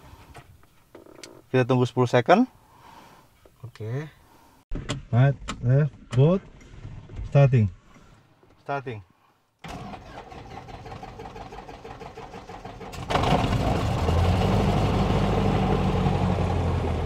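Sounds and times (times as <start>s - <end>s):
starter motor cranking: 9.6s - 13.9s.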